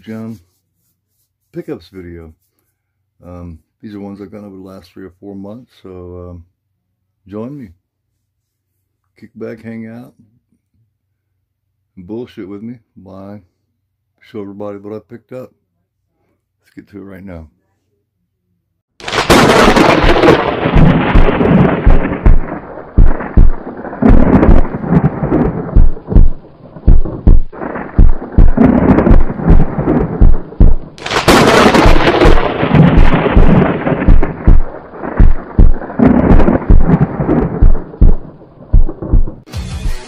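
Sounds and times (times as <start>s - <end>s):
thunder rumble with low thumps: 19.0s - 39.5s
thunder cracks: 19.0s - 40.0s.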